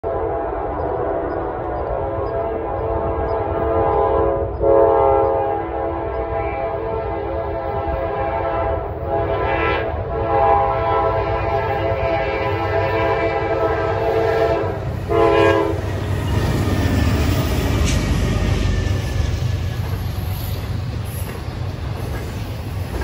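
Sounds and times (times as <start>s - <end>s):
locomotive air horn chord: 0.0s - 16.0s
train low rumble: 0.0s - 23.0s.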